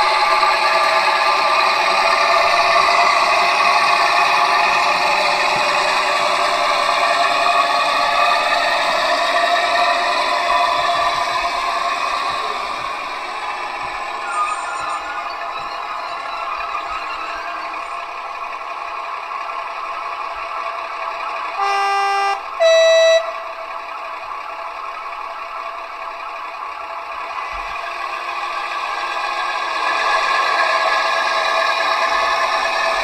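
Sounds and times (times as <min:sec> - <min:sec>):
diesel locomotive engine: 0:00.0 - 0:33.0
locomotive horn blasts: 0:21.6 - 0:23.6.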